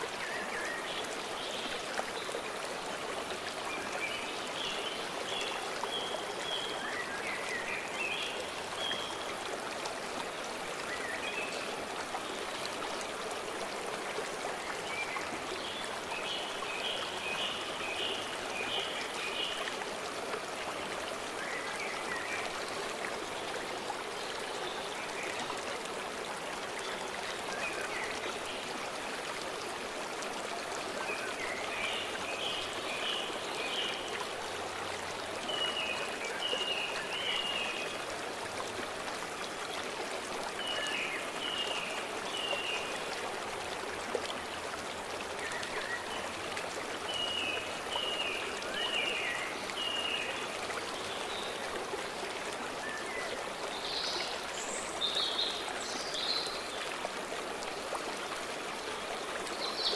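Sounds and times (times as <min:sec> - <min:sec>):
stream water flowing: 0:00.0 - 0:59.9.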